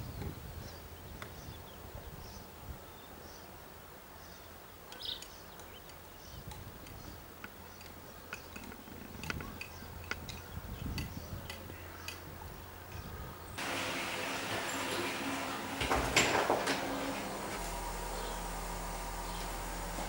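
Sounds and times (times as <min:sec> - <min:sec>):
low steady hum: 0:14.1 - 0:20.0.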